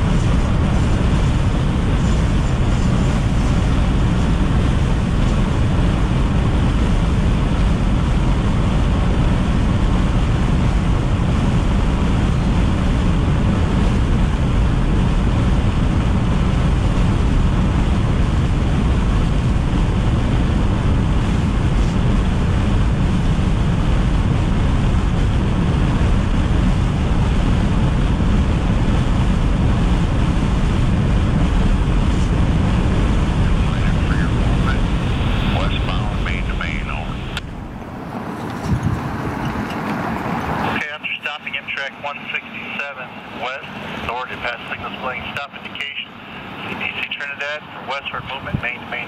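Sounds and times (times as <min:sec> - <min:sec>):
road and wind noise in car: 0:00.0 - 0:49.0.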